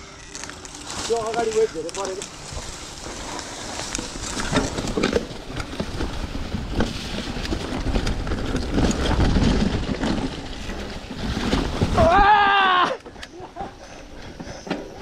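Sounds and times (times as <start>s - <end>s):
mountain bike rattling: 0.0s - 15.0s.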